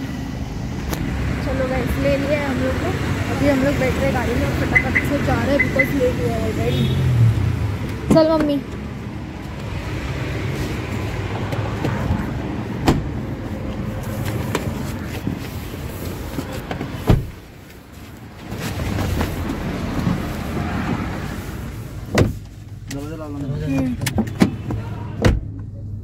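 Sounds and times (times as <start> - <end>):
street traffic noise: 0.0 - 26.0
car doors thudding shut: 12.8 - 13.2, 16.8 - 17.4, 22.1 - 22.4.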